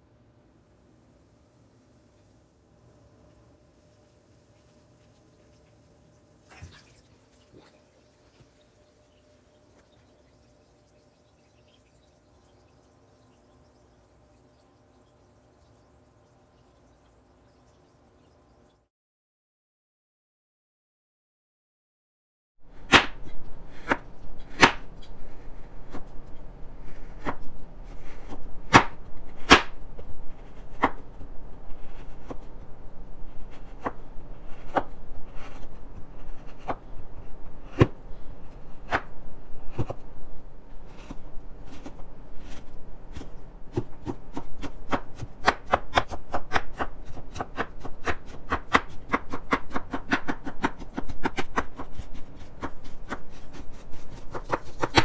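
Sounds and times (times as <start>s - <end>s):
knife cutting on cutting board: 26.8s - 29.8s, 33.4s - 36.8s, 40.9s - 55.0s.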